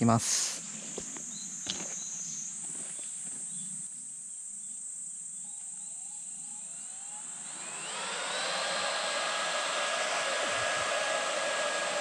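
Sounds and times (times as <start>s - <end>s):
insects buzzing: 0.0s - 12.0s
motor winding up whine: 5.5s - 12.0s.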